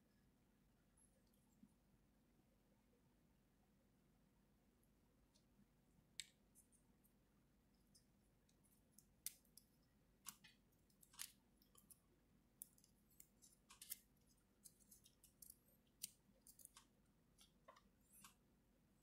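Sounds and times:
plastic parts clicking: 8.5 - 12.0, 12.6 - 18.4.

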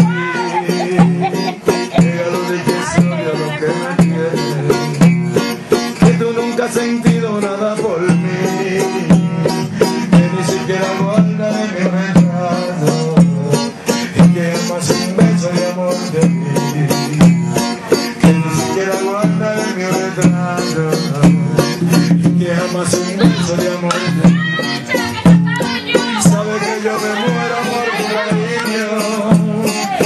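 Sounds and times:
percussion steady beat: 0.0 - 30.0
plucked and strummed strings: 0.0 - 30.0.

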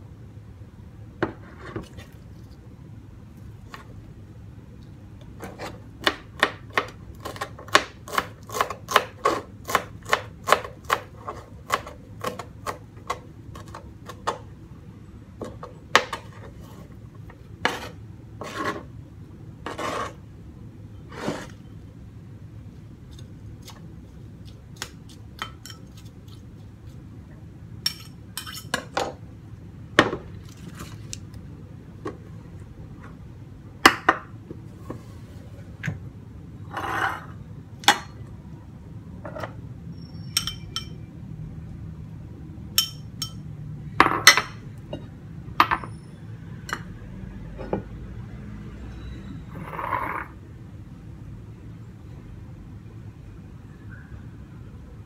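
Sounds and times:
knife scraping board: 5.4 - 5.8, 17.6 - 18.9, 19.6 - 20.2, 21.1 - 21.6, 36.7 - 37.3
knife chopping herbs on board: 6.0 - 14.4.

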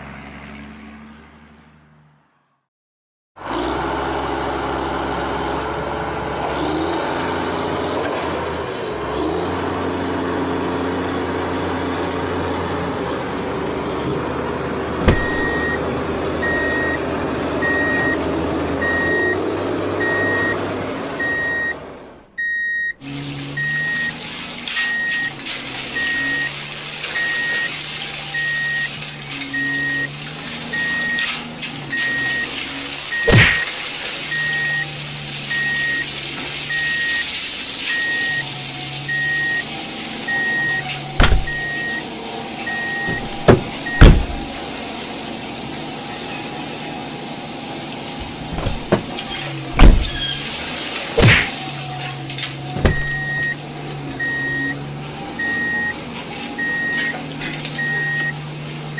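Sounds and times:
truck engine running: 3.4 - 58.9
back-up alarm beeping: 15.1 - 15.8, 16.4 - 17.0, 17.6 - 18.2, 18.8 - 19.4, 20.0 - 20.6, 21.2 - 21.8, 22.4 - 23.0, 23.6 - 24.2, 26.0 - 30.1, 30.7 - 31.3, 31.9 - 33.7, 34.3 - 36.1, 36.7 - 37.3, 37.9 - 38.5, 39.1 - 39.7, 40.3 - 42.1, 42.7 - 44.5, 52.8 - 53.6, 54.2 - 54.8, 55.4 - 56.0, 56.6 - 57.2, 57.8 - 58.4.

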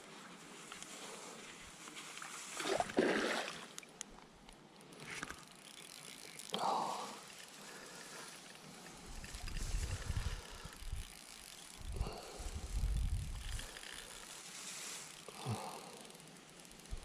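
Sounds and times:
fishing reel ticking: 3.8 - 17.0.

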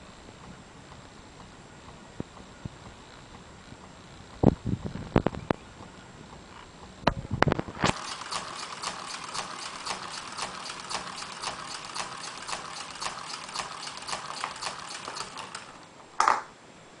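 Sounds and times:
pneumatic cylinders clicking: 7.8 - 15.8.

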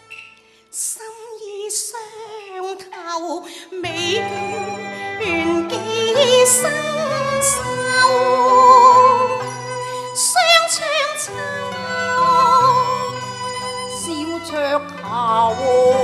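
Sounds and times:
woman singing opera: 0.7 - 16.0
instrumental accompaniment: 3.8 - 16.0.

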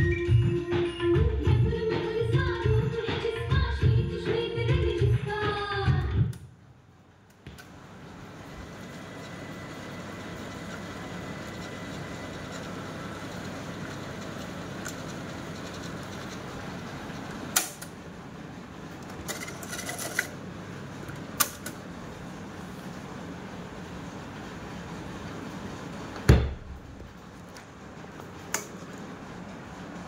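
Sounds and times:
cassette tape transport whirring: 7.0 - 30.0.

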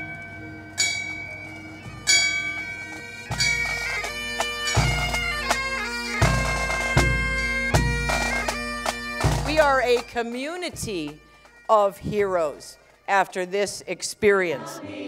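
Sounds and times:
bell ringing: 0.0 - 5.2
bagpipes playing a tune: 0.0 - 14.9.

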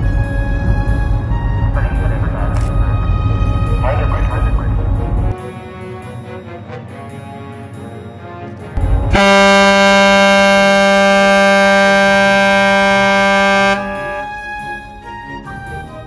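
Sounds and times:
ship's whistle blast: 9.2 - 15.0.

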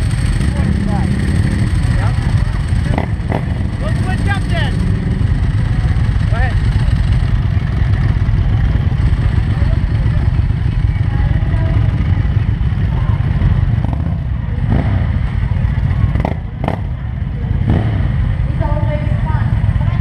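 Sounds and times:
motorcycle engine rumbling: 0.0 - 20.0
people's voices: 0.0 - 20.0.

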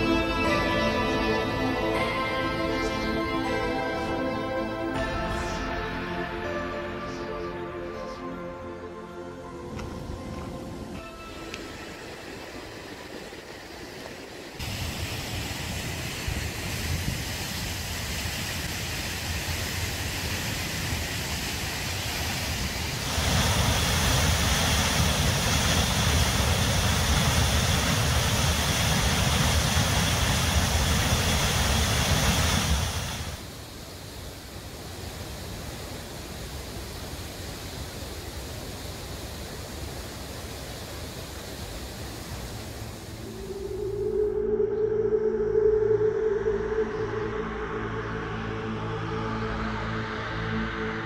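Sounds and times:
waterfall rushing: 8.6 - 44.9.

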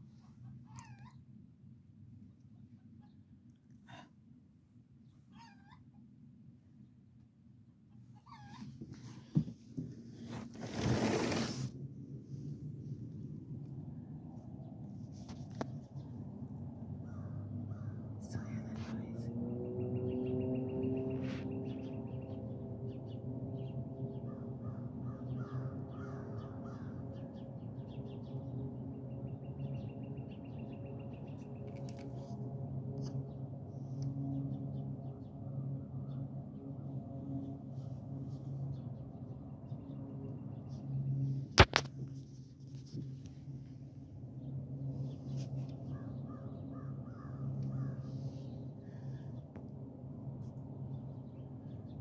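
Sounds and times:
high yelping animal calls: 0.6 - 1.2
low hum of held tones: 11.9 - 52.0.

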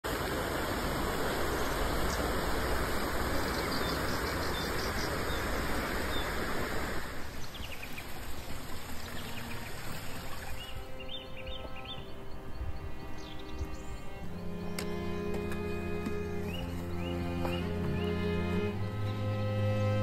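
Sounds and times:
fast river rushing: 0.0 - 20.0
bird chirps: 3.4 - 6.4, 9.1 - 20.0.

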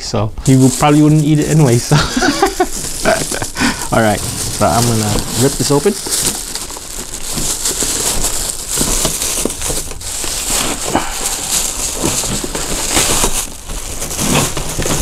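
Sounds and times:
plastic bag crinkling: 0.4 - 15.0.

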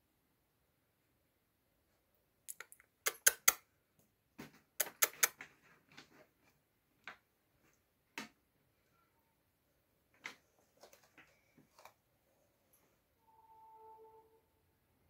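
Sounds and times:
sharp clicks and taps: 2.5 - 3.6, 4.8 - 5.4.

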